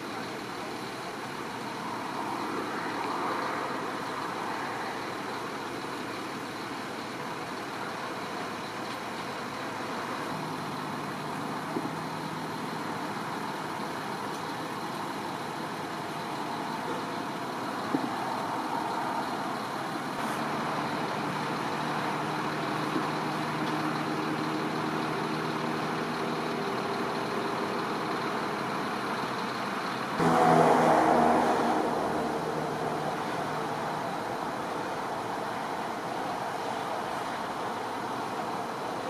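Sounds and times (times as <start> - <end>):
highway traffic noise: 0.0 - 39.0
vehicle engine humming: 0.0 - 39.0
loud passing vehicle: 30.1 - 37.8.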